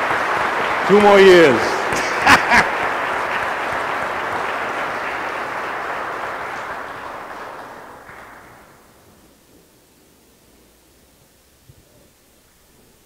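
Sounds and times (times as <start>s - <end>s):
congregation applauding: 0.0s - 9.3s.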